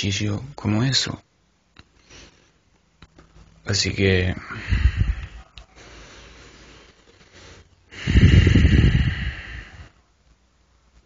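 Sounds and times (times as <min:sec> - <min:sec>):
person breathing: 0:01.9 - 0:02.6, 0:04.4 - 0:10.1.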